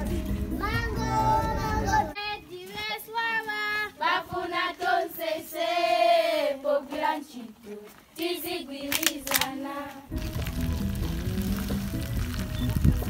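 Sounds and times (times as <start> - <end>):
girls singing together: 1.0 - 10.1.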